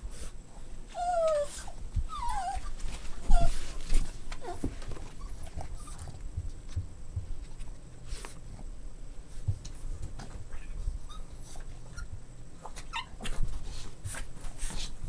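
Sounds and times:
puppies whimpering: 0:00.9 - 0:03.8.

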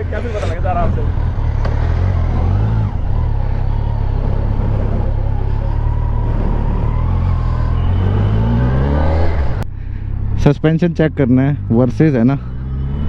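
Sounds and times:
motorcycle engine running: 0:00.8 - 0:09.6.

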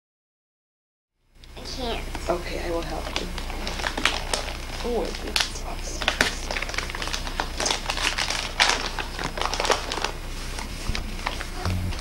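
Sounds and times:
wrapping paper crinkling: 0:03.0 - 0:12.0.

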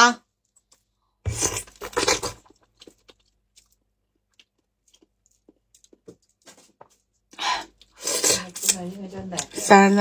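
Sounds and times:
loud bite into food: 0:01.3 - 0:03.3
faint chewing clicks: 0:02.4 - 0:06.4.

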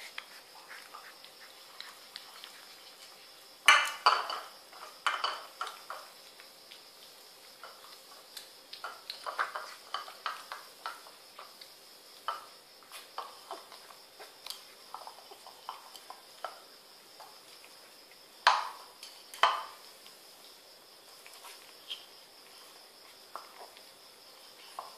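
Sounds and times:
bowl clinking on tiles: 0:03.7 - 0:06.1.

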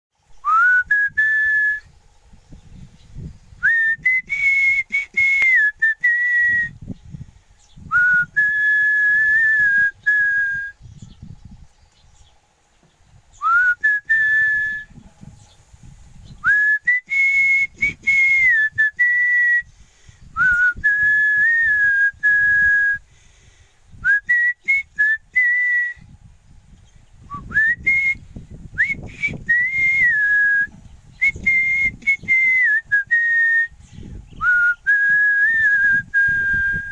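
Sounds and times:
wind buffeting microphone: 0:00.2 - 0:36.9
person whistling a slow tune: 0:00.4 - 0:01.9, 0:03.6 - 0:06.8, 0:07.8 - 0:10.9, 0:13.4 - 0:15.0, 0:16.4 - 0:23.0, 0:24.0 - 0:26.2, 0:27.2 - 0:36.9.

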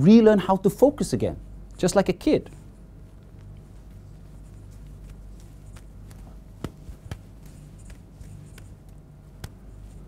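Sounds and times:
low steady hum: 0:00.0 - 0:10.0
balls landing in hands: 0:05.8 - 0:08.7, 0:09.3 - 0:09.6.

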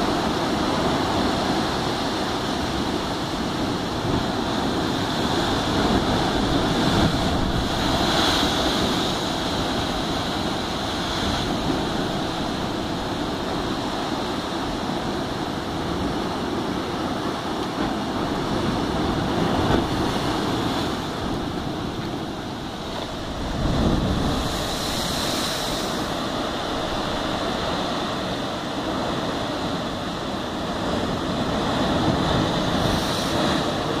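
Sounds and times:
surf crashing on rocks: 0:00.0 - 0:34.0.

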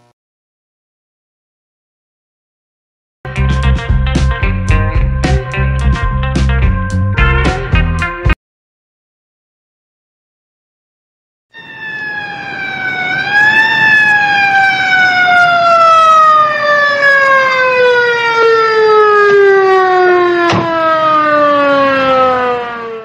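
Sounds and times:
police siren wailing: 0:11.5 - 0:23.0.

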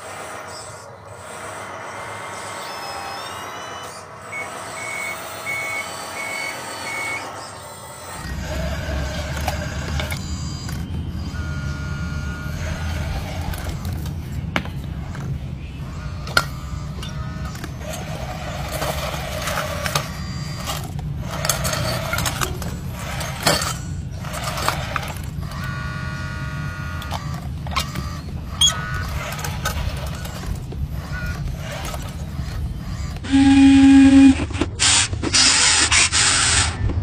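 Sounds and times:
toy motor and gears whirring: 0:00.0 - 0:37.0
short loud buzzing tone: 0:32.9 - 0:34.6.

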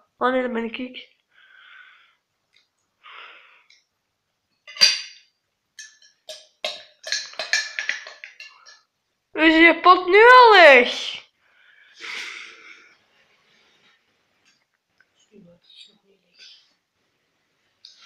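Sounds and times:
person breathing close: 0:01.3 - 0:02.3, 0:03.0 - 0:03.8, 0:11.4 - 0:13.1.

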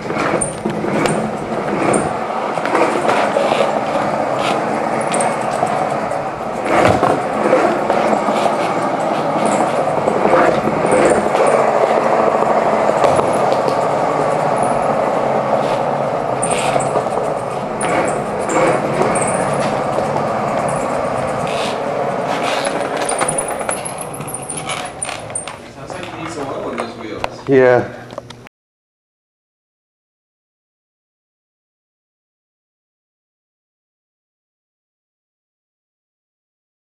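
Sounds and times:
skateboard wheels rumbling: 0:00.0 - 0:27.0
wheels clicking over floor joints: 0:00.0 - 0:27.6.

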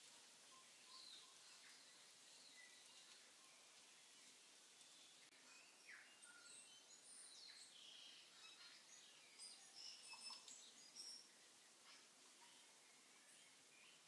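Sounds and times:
low hiss: 0:00.0 - 0:14.0
high-pitched chirps and whistles: 0:05.4 - 0:12.0.

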